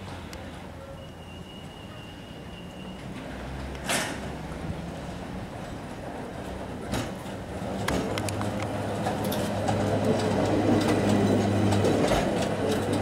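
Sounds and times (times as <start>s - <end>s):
tram motor hum: 0.0s - 13.0s
tram wheels clicking on rails: 2.7s - 13.0s.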